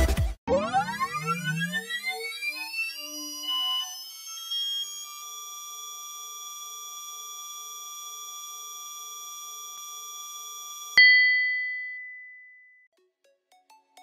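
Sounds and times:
sharp ringing chime: 11.0 - 12.8.

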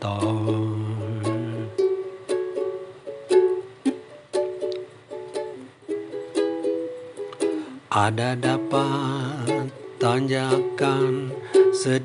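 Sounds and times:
ukulele melody: 0.0 - 12.0.

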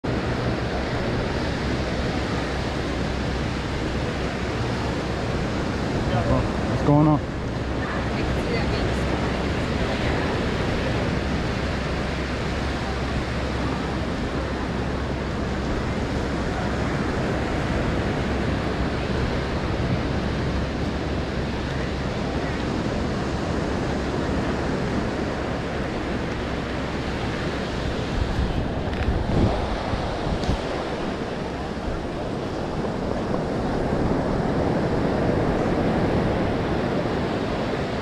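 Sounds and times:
ocean surf: 0.0 - 38.0
wind rumbling on microphone: 0.0 - 38.0.

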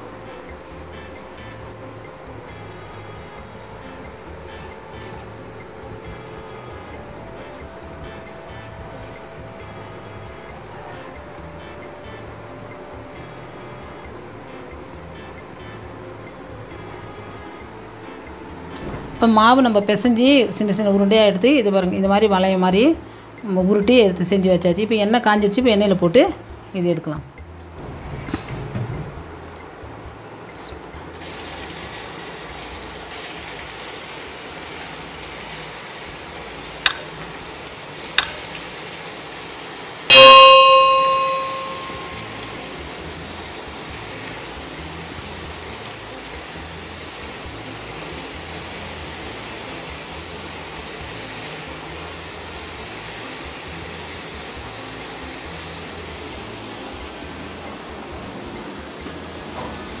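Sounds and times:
oil sizzling and bubbling: 31.1 - 60.0
bell-like metallic ring: 36.2 - 38.7, 40.1 - 42.8.

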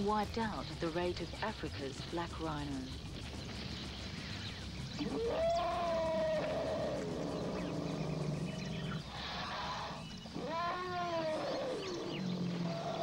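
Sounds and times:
low steady drone: 0.0 - 10.5
elephant trumpeting: 5.0 - 8.1, 8.9 - 13.0.

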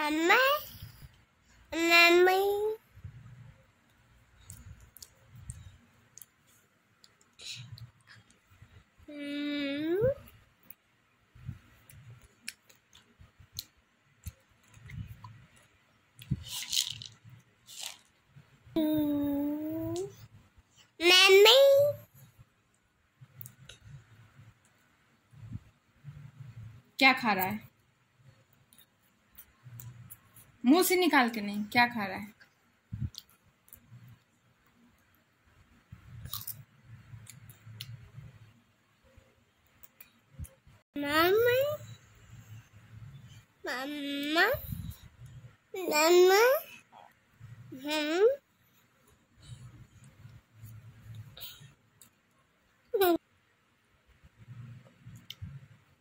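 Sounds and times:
soft mouth clicks and smacks: 3.9 - 8.6, 11.7 - 16.5, 22.7 - 24.0, 32.4 - 34.2, 36.0 - 38.1, 55.0 - 55.6
toddler chewing food: 36.1 - 38.3.

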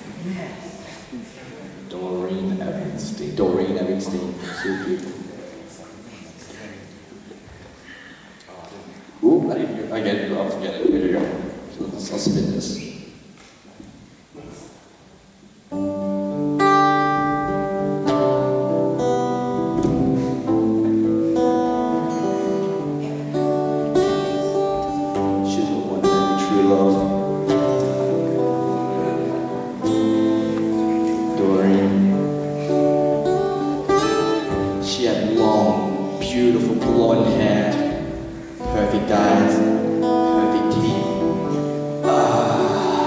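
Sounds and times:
acoustic guitar strumming: 15.7 - 43.0.

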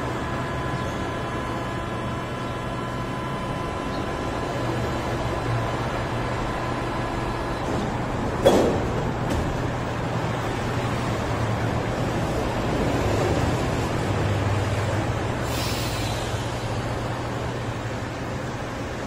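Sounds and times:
train low hum: 0.0 - 19.0
air hiss: 15.4 - 16.6.

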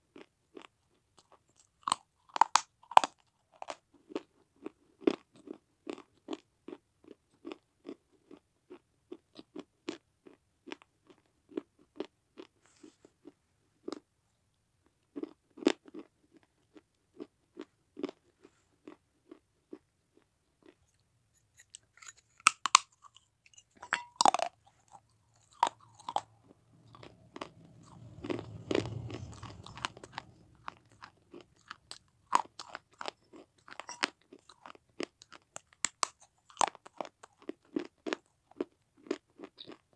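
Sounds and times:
crisp crunching of chewing: 0.1 - 12.6, 15.1 - 39.9
sharp bites and cracks: 21.6 - 23.1
low rumbling: 25.6 - 32.4.

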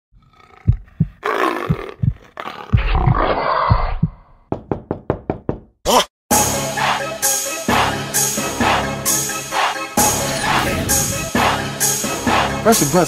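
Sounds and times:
low thumps: 0.7 - 2.2
short swoosh: 10.2 - 11.7.

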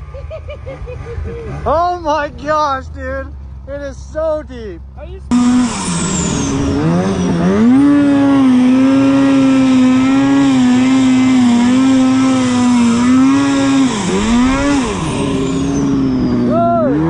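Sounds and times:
snowmobile engine at high revs: 0.0 - 17.0.

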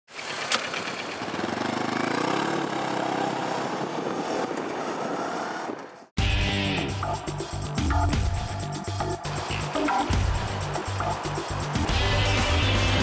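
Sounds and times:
motorcycle engine revving: 0.1 - 5.6.

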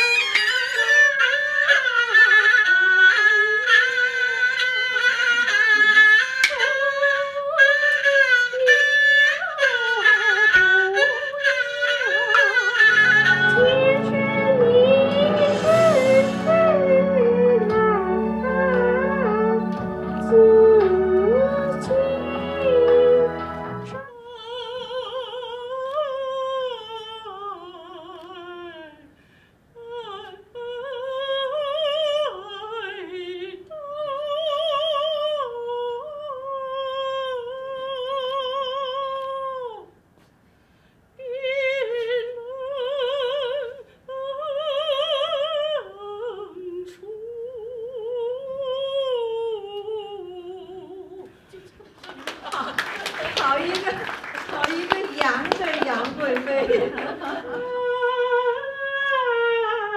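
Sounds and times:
woman singing opera with vibrato: 0.0 - 29.2, 29.8 - 39.9, 41.2 - 51.8, 52.7 - 59.9.

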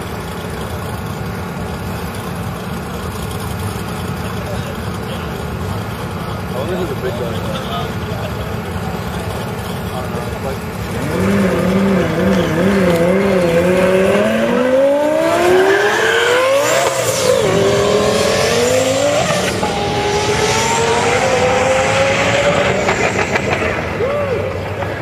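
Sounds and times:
sports car engine revving: 0.3 - 25.0
car accelerating hard: 6.5 - 25.0
gear upshifts: 10.7 - 25.0.

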